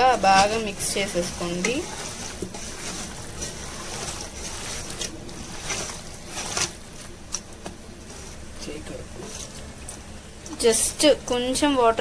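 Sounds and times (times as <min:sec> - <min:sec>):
hand squelching meat in marinade: 0:00.0 - 0:08.6.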